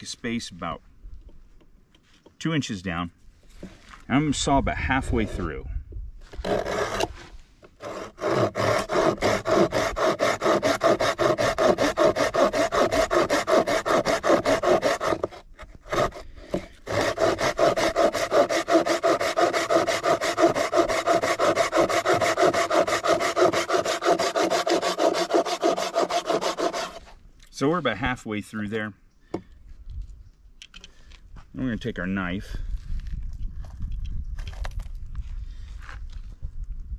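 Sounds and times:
hand saw cutting log: 0:06.3 - 0:27.1.

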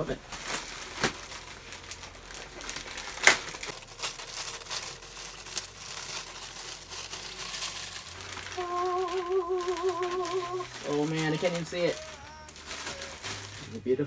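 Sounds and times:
plastic mailer bag crinkling: 0:00.0 - 0:14.0
wavering voice-like note: 0:08.5 - 0:13.4.

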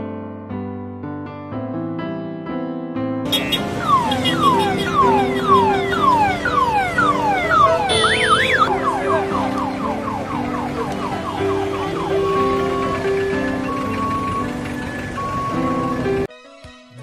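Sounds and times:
background music with held notes: 0:00.1 - 0:17.0
electronic siren cycling patterns: 0:03.4 - 0:16.3.

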